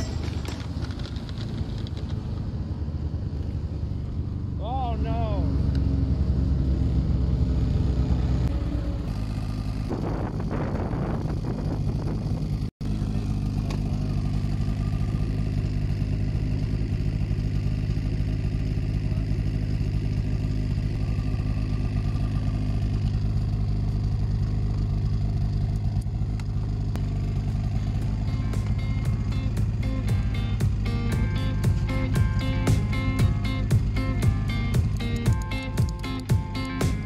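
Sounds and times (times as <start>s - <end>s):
clattering: 0.0s - 2.2s
snowmobile engine idling: 0.0s - 37.0s.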